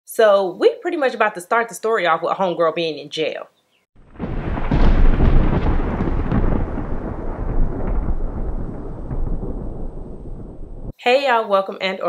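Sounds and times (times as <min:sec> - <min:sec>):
rolling thunder: 0:04.0 - 0:10.9.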